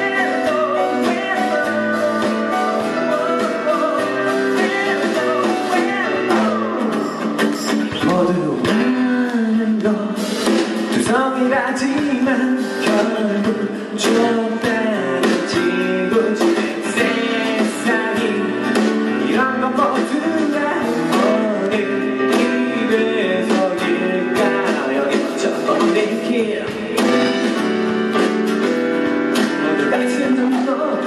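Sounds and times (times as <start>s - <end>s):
man singing into a microphone: 0.0s - 27.8s, 29.4s - 31.0s
acoustic guitar strumming: 0.0s - 31.0s.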